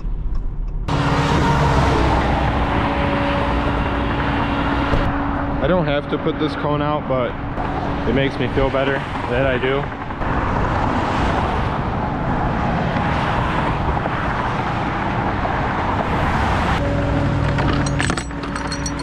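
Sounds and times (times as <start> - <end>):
highway traffic rushing: 0.0 - 19.0
truck engine humming: 14.2 - 19.0
tow chain clinking: 16.8 - 19.0.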